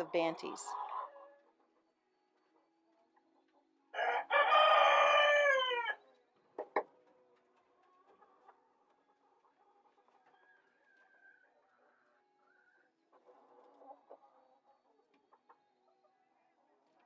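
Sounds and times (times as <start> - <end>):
rooster crowing: 3.9 - 6.0.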